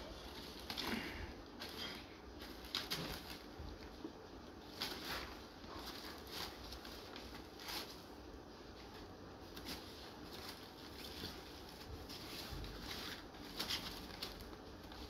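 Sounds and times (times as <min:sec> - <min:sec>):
plastic bags rustling: 0:00.0 - 0:15.0.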